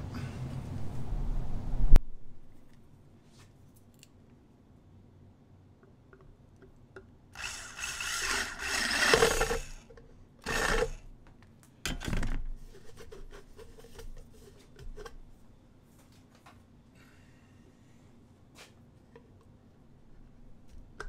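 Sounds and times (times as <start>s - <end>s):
power drill boring through plastic: 7.4s - 11.0s.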